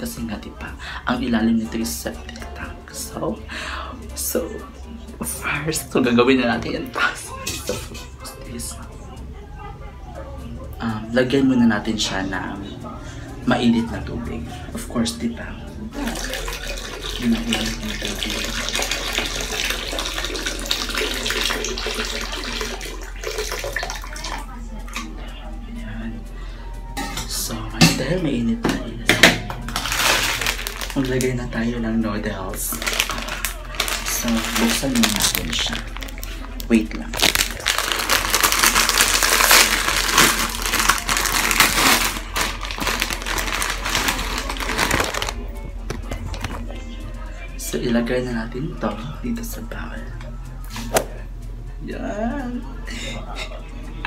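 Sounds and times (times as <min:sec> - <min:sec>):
water pouring into toilet bowl: 0:16.0 - 0:24.4
plastic packet crinkling: 0:29.7 - 0:31.5, 0:32.5 - 0:46.6.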